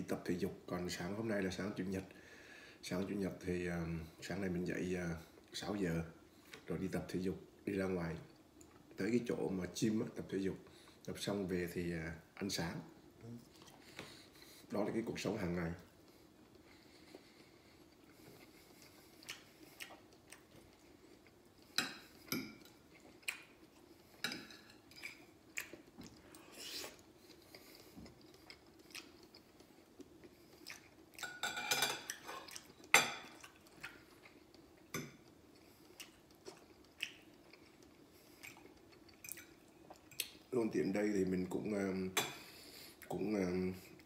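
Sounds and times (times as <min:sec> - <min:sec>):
faint steady hum: 0:00.0 - 0:44.0
chewing: 0:13.2 - 0:14.7, 0:15.8 - 0:31.4, 0:32.0 - 0:40.5
cutlery clinking on a plate: 0:31.2 - 0:33.4.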